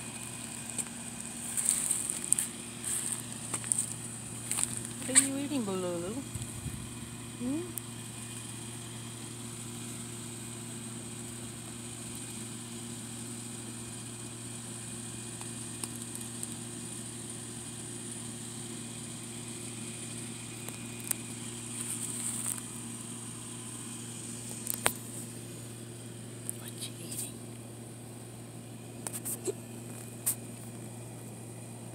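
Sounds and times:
machine hum with faint hiss: 0.0s - 31.9s
small clicks and rustles: 0.6s - 5.4s, 15.4s - 16.6s, 20.6s - 22.8s.

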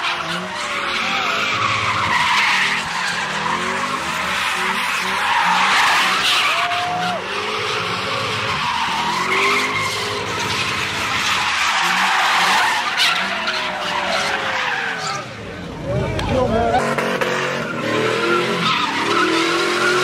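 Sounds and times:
car tyres screeching: 0.0s - 20.0s
car engine revving hard: 16.3s - 20.0s.

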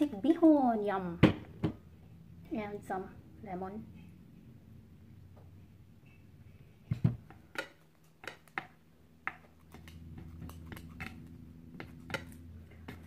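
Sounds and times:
low steady hum: 0.0s - 13.0s
chopsticks tapping ceramic plate: 7.5s - 8.7s.

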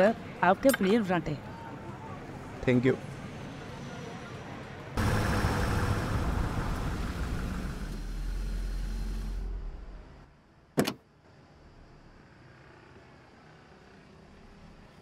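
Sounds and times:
car driving up and stopping: 5.0s - 10.3s
car door shutting: 10.8s - 11.0s.

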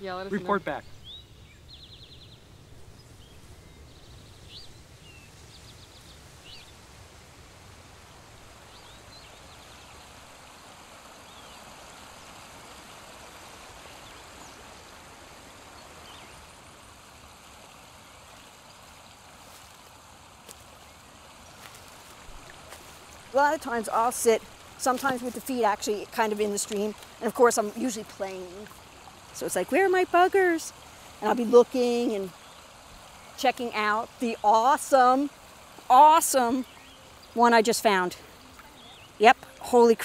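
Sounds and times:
stream rushing water: 4.7s - 40.0s
bird chirps: 38.3s - 39.6s.

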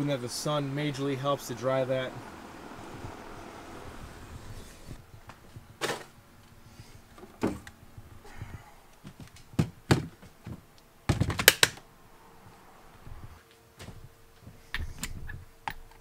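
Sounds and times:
plastic tool gear knocks and clicks: 11.1s - 11.8s.

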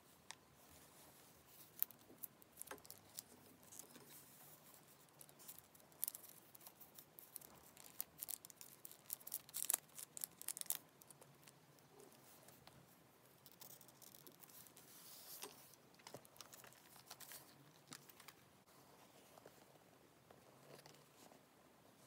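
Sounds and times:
plastic crinkling: 1.5s - 12.3s.

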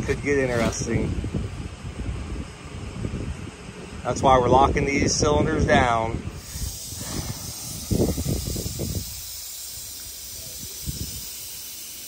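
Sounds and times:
compressed gas hissing: 6.3s - 12.0s.

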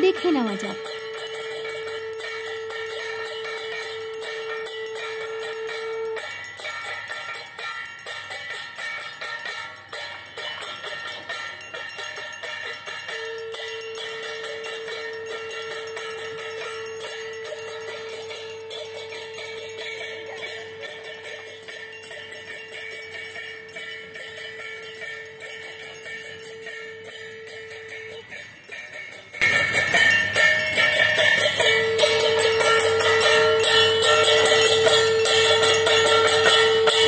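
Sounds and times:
long steady note: 0.0s - 6.3s, 13.1s - 21.7s, 31.4s - 37.0s
bells and cymbals clanging: 0.0s - 37.0s.

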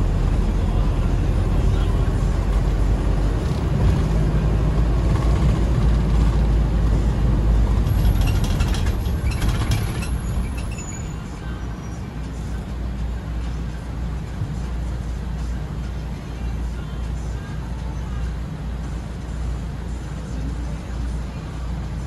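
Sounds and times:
minibus engine and road rumble: 0.0s - 22.0s
high-pitched clicks and squeaks: 7.8s - 11.5s.

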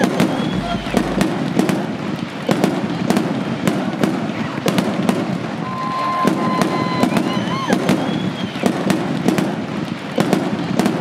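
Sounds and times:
firework whistle: 0.0s - 1.4s, 5.6s - 9.0s
fireworks bangs: 0.0s - 11.0s
fireworks crackling: 0.0s - 11.0s.

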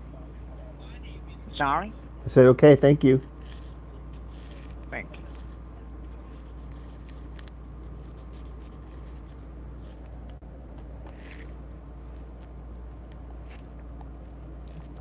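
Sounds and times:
low background hum: 0.0s - 15.0s
soft rustles: 3.4s - 13.8s.

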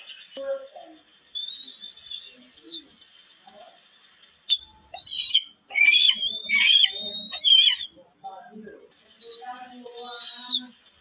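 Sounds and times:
eagle calls: 1.4s - 2.9s, 4.5s - 8.0s, 9.1s - 10.7s.

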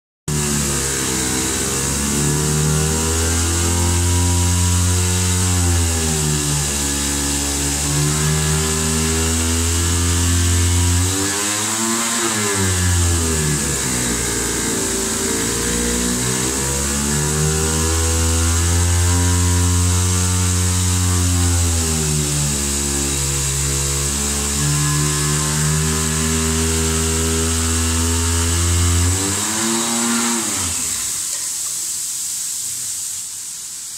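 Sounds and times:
cutter whine: 0.3s - 31.7s
high hiss: 29.7s - 33.9s.

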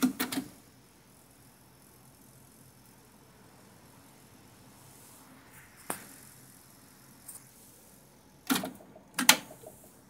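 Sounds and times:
cassette deck mechanical clicks: 8.5s - 9.6s.

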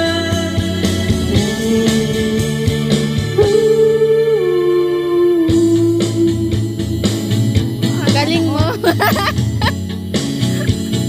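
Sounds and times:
man singing into microphone: 0.0s - 7.4s
guitar accompaniment: 0.0s - 11.0s.

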